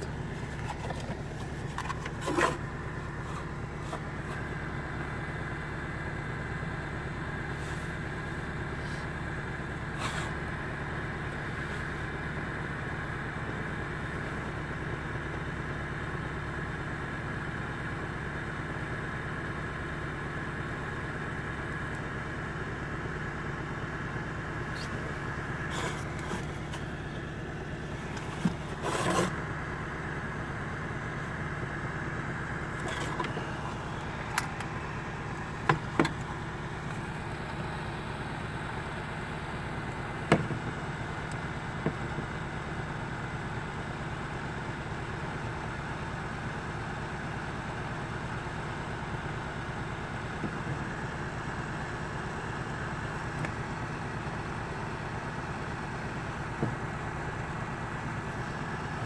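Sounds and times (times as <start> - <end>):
car engine idling: 0.0 - 59.0
plastic heater knocked by hand: 40.3 - 40.6.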